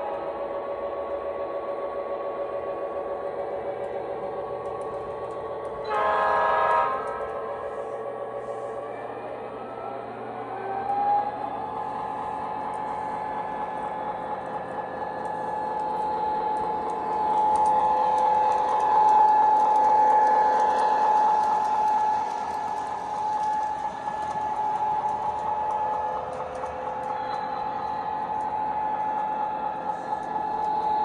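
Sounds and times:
toy train motor whine: 11.7 - 31.0.

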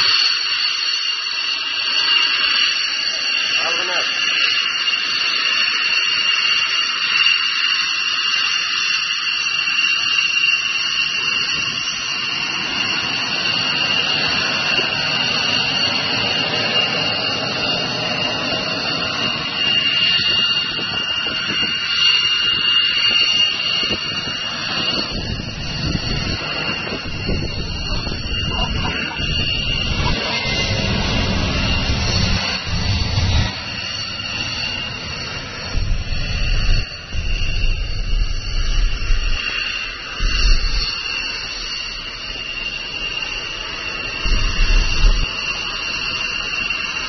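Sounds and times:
jet engines at takeoff power: 0.0 - 47.0
deep rumble: 22.5 - 46.6.

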